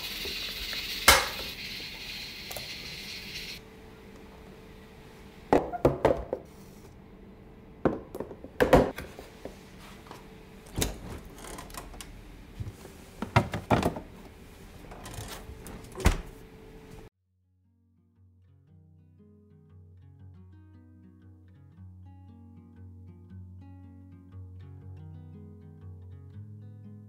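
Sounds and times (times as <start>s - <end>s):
containers set down on stone countertop: 5.5s - 6.5s, 7.8s - 9.1s
refrigerator door: 10.7s - 12.0s, 14.9s - 16.4s.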